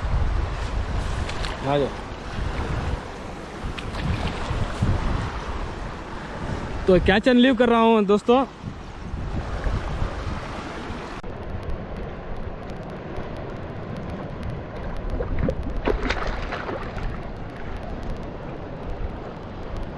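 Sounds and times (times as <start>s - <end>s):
wind buffeting microphone: 0.0s - 7.2s, 8.5s - 19.9s
short water splashes: 1.2s - 5.6s, 15.1s - 17.7s.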